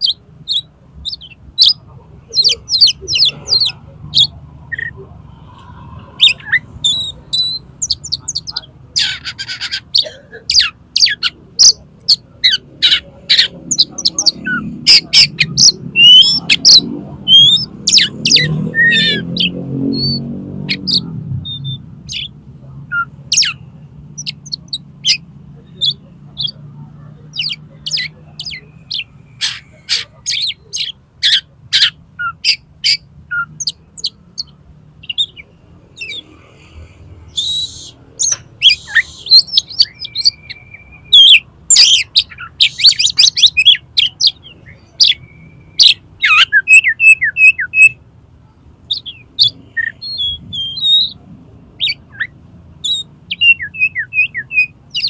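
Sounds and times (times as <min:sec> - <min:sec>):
bird singing whistles and trills: 0:10.0 - 0:22.3, 0:37.3 - 0:48.0, 0:48.9 - 0:51.2, 0:51.8 - 0:55.0.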